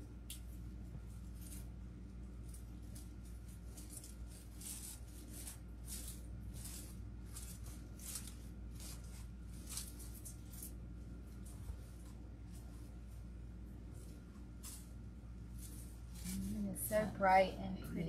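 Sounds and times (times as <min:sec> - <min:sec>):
artificial greenery rustling: 0:00.0 - 0:18.0
low steady hum: 0:00.0 - 0:18.0.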